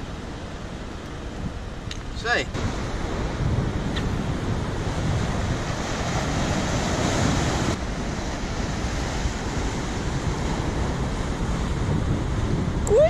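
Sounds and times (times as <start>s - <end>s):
wind buffeting microphone: 0.0s - 13.0s
surf breaking over rocks: 2.2s - 13.0s.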